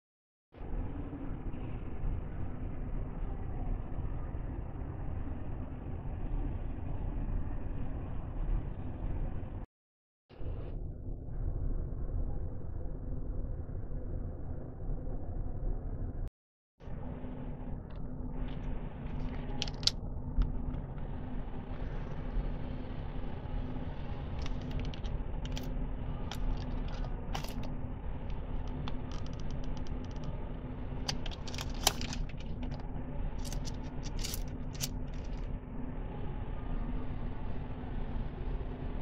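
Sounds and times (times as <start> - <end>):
low hum: 0.6 - 9.7, 10.3 - 39.0
coffee packets crinkling: 31.1 - 32.8, 33.4 - 35.4.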